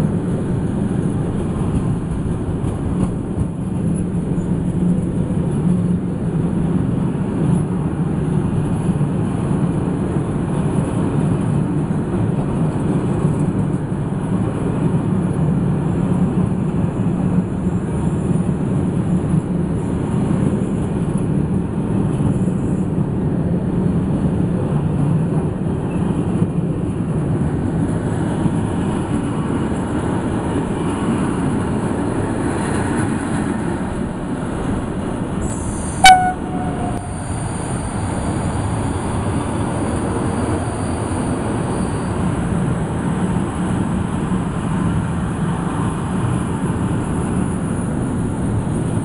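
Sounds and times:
train wheels rumbling on rails: 0:00.0 - 0:49.0
train horn toot: 0:35.4 - 0:37.7.

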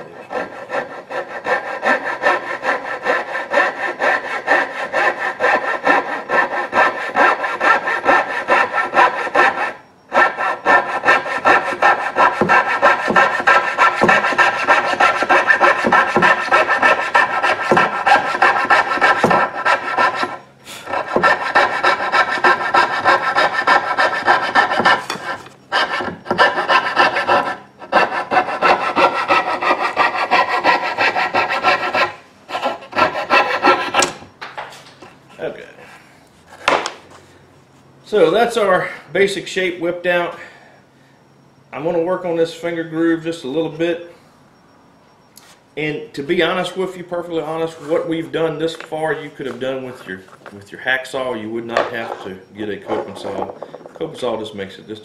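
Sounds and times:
saw cutting wood: 0:00.0 - 0:34.3, 0:51.1 - 0:53.5.

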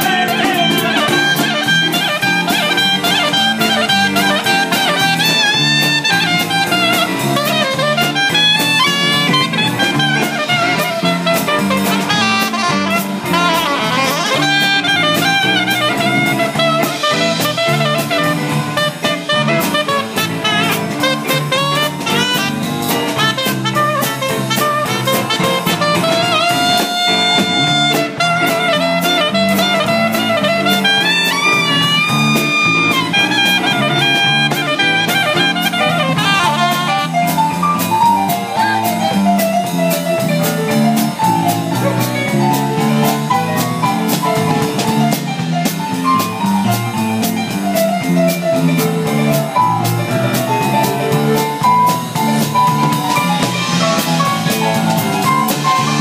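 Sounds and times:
soprano saxophone lead: 0:00.0 - 0:39.2, 0:51.2 - 0:56.0
jazz band playing swing: 0:00.0 - 0:56.0.

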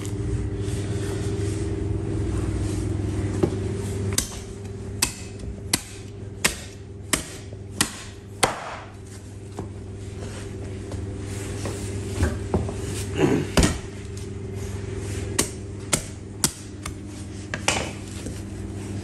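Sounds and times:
cleaver chopping bone on wood: 0:04.1 - 0:08.9, 0:15.4 - 0:17.0.

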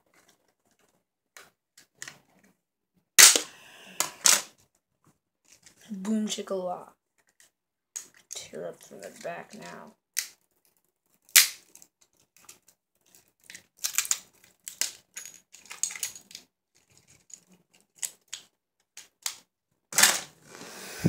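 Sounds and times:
plastic casing cracking and clicking: 0:10.2 - 0:19.4.

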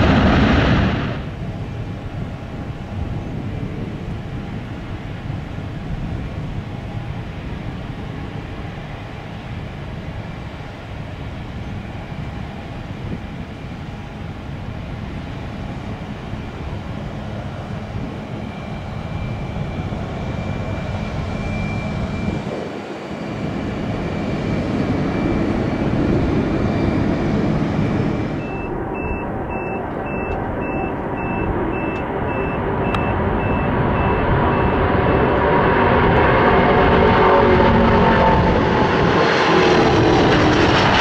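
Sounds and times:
jet engines whining: 0:00.0 - 0:41.0
vehicle reversing beeper: 0:27.8 - 0:35.4.

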